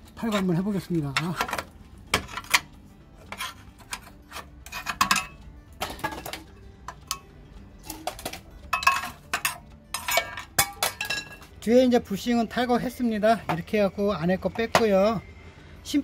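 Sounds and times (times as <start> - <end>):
screwdriver scraping metal: 0.0 - 5.4.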